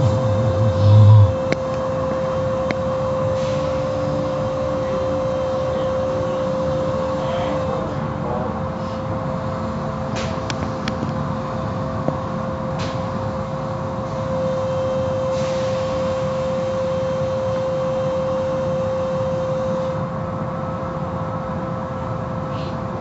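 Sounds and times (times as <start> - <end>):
car wash machinery humming: 0.0 - 23.0.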